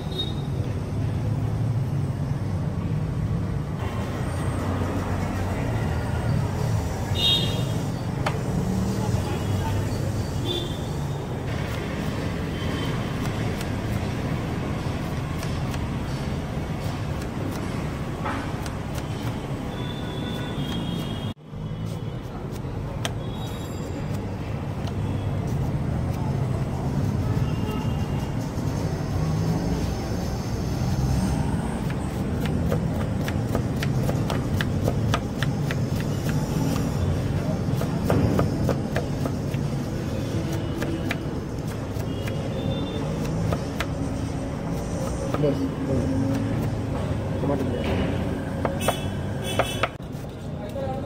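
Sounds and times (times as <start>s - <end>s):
street traffic rumble: 0.0s - 51.0s
knife chopping on wooden board: 17.1s - 19.5s, 31.8s - 37.0s, 37.6s - 39.7s, 47.6s - 50.0s.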